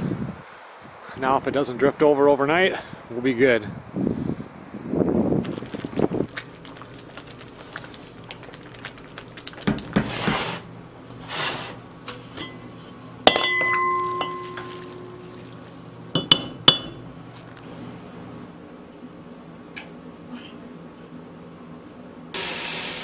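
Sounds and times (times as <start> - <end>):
metal pot lid clanking: 13.3 - 15.0.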